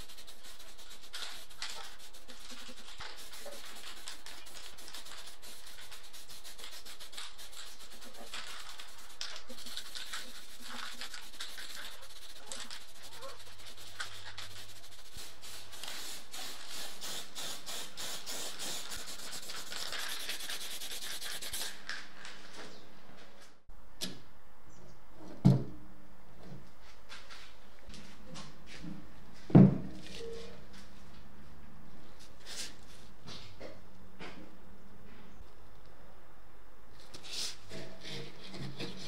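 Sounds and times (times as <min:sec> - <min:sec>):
spray paint can hissing: 0:00.0 - 0:21.8.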